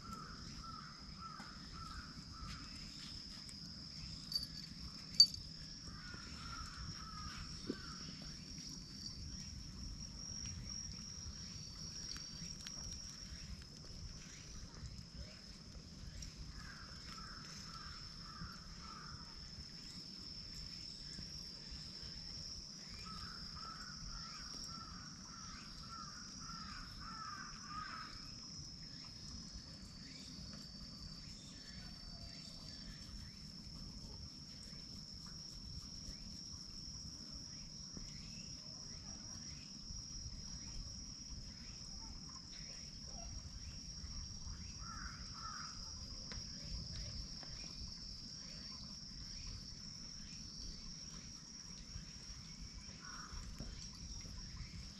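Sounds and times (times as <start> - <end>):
high-pitched insect drone: 0.0 - 14.6.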